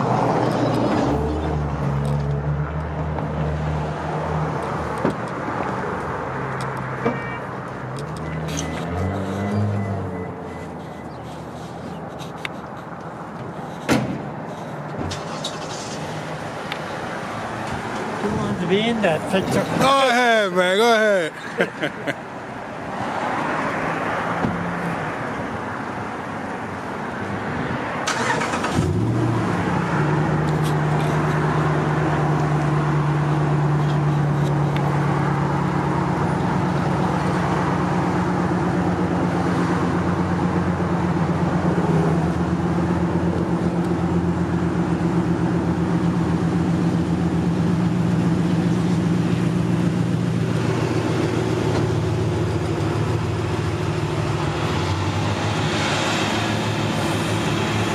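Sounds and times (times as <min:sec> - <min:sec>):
vehicle engine humming: 0:00.0 - 0:57.9.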